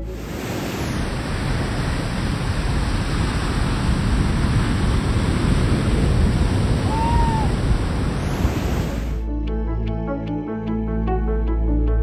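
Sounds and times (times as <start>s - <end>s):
ocean waves breaking: 0.0s - 9.2s.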